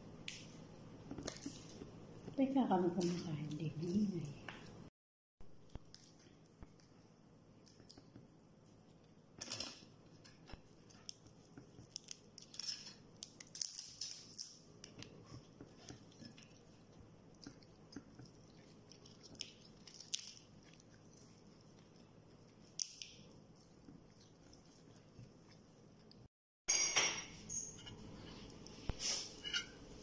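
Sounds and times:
chewing: 14.8s - 26.3s.

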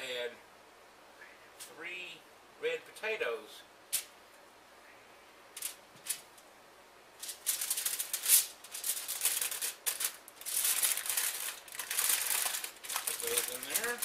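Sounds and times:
aluminium foil crinkling: 5.6s - 6.3s, 7.2s - 14.0s.

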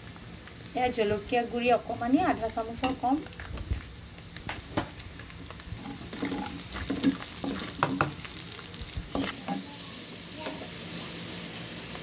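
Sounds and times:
onions sizzling in hot oil: 0.0s - 12.0s
spatula scraping a pan: 5.6s - 8.3s.

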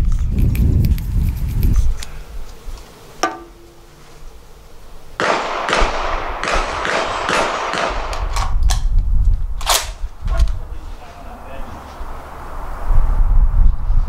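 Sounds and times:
irregular sharp cracks: 5.2s - 9.0s, 9.6s - 10.6s
loud rushing noise: 10.1s - 14.0s.

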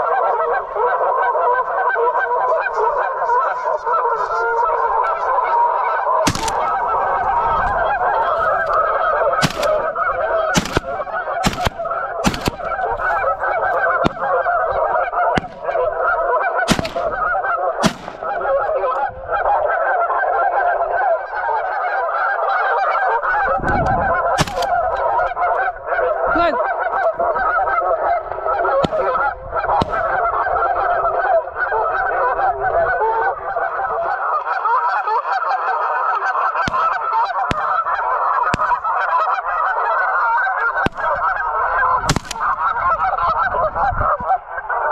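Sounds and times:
flock of geese honking: 0.0s - 44.9s
sharp clicks: 6.3s - 6.9s, 9.4s - 9.9s, 10.6s - 12.8s, 16.7s - 17.2s, 24.4s - 24.8s.

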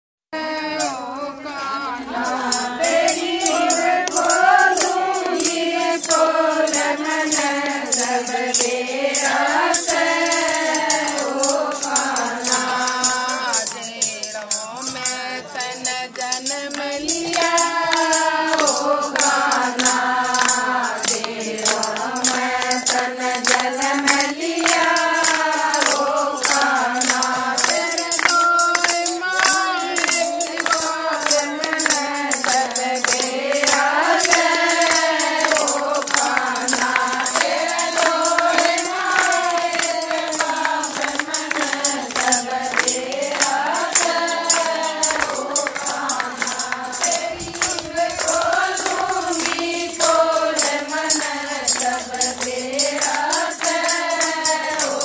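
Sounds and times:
hand claps: 0.4s - 55.0s
women singing together: 0.4s - 55.0s.

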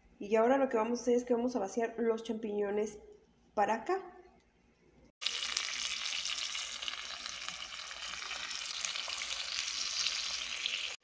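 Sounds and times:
chicken sizzling in oil: 5.2s - 11.0s.

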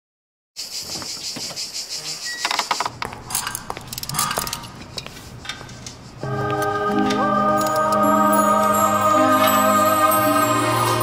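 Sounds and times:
music: 6.2s - 11.0s.

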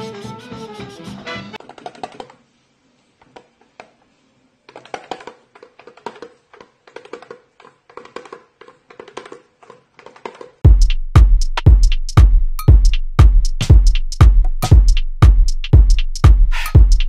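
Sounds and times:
bird tapping on toy drum: 1.6s - 2.4s, 4.7s - 10.6s.

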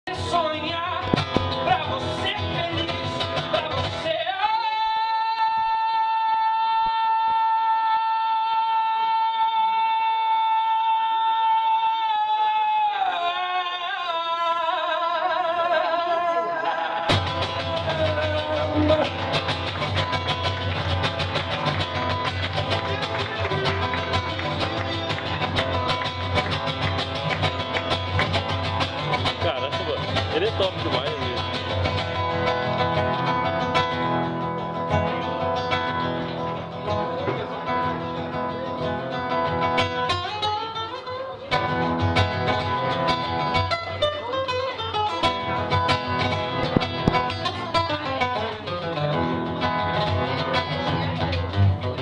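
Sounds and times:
man singing: 0.0s - 20.6s
acoustic guitar strumming: 0.1s - 6.4s, 14.8s - 52.0s.

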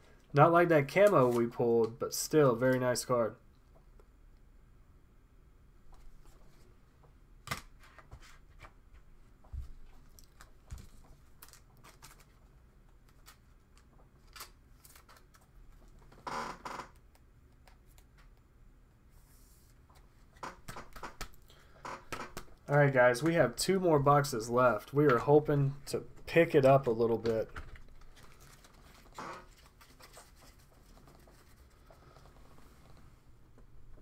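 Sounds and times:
cards clicking and rustling: 9.9s - 15.9s, 26.4s - 32.4s.

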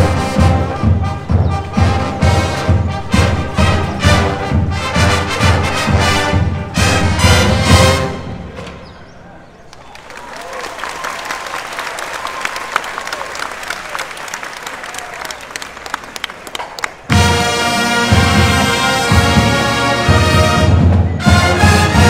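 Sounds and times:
marching band brass chords: 0.0s - 8.8s, 17.0s - 22.0s
audience applauding and cheering: 9.7s - 19.1s.

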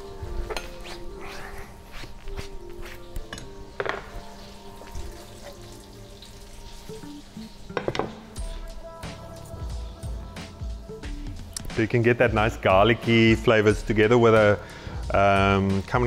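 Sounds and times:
soft background music: 0.0s - 16.0s
metal pans and utensils clinking: 3.3s - 8.4s.

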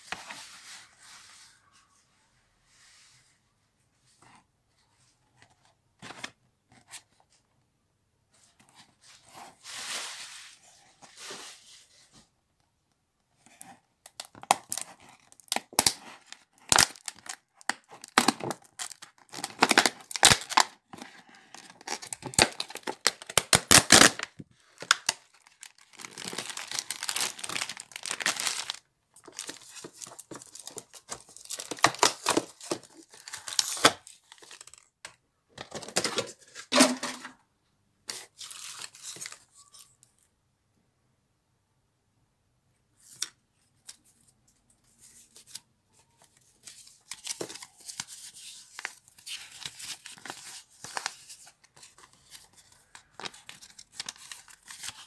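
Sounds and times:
plastic packaging crinkling: 14.2s - 34.9s.

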